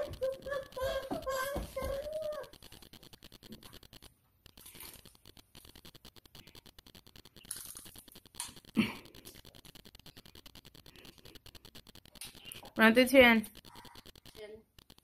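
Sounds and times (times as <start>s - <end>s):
seaweed snack crackling being chewed: 2.4s - 12.8s.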